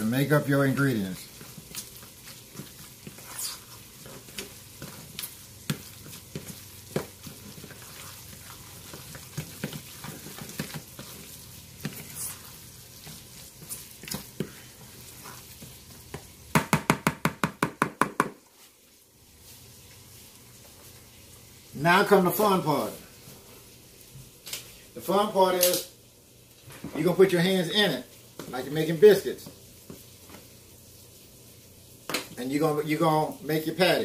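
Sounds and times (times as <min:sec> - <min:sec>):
spatula stirring in plastic bowl: 0:00.1 - 0:16.4.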